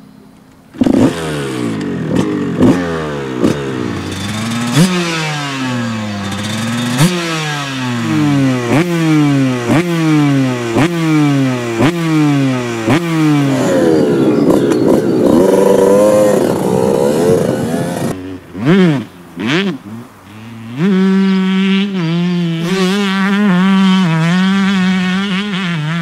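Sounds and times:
two-stroke motorcycle engine revving: 0:00.7 - 0:26.0.

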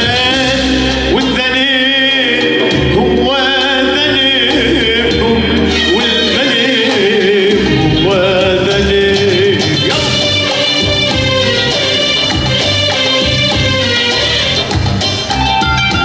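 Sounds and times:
man singing ornamented vocals: 0:00.0 - 0:11.1
electronic keyboard accompaniment: 0:00.0 - 0:16.0.

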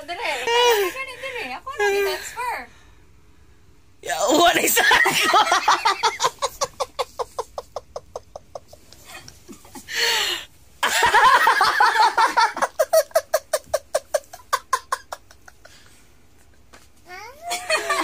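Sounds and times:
man laughing hard: 0:04.7 - 0:10.1, 0:10.8 - 0:15.9, 0:17.5 - 0:18.0.

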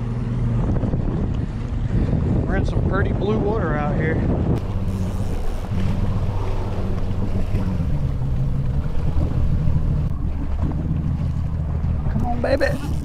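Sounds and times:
wind buffeting microphone: 0:00.0 - 0:13.0
outboard motor idling: 0:04.3 - 0:13.0.

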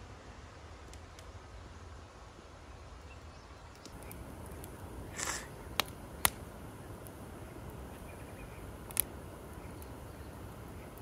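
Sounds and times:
campfire crackling: 0:03.7 - 0:11.0
sharp pops of burning wood: 0:03.7 - 0:11.0.

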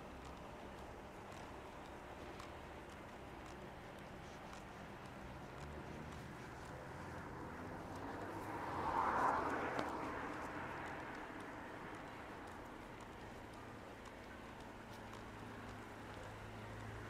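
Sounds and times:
footsteps on pavement: 0:00.0 - 0:17.0
car driving past: 0:05.9 - 0:12.6.

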